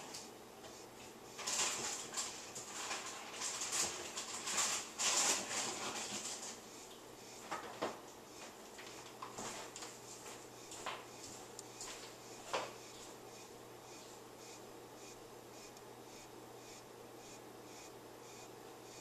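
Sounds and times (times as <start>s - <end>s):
steady low hum: 0.0s - 19.0s
scratchy crackling of insect feeding: 0.1s - 7.6s.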